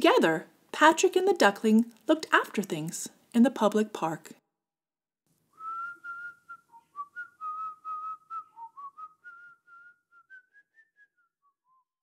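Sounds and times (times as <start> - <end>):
person whistling a tune: 5.6 - 12.0.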